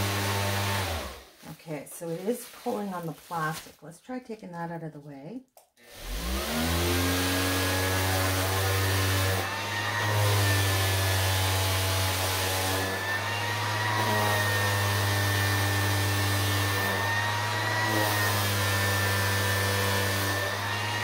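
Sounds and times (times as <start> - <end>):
orbital sander humming: 0.0 - 1.4, 5.8 - 21.0.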